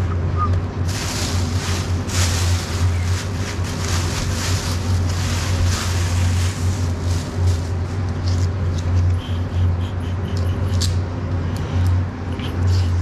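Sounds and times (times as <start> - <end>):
low steady hum: 0.0 - 13.0
plastic bag crinkling: 0.9 - 8.5.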